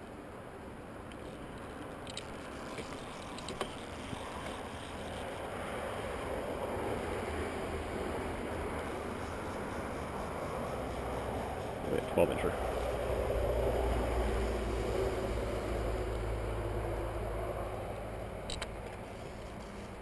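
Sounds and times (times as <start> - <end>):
steady rushing outdoor noise: 0.0 - 20.0.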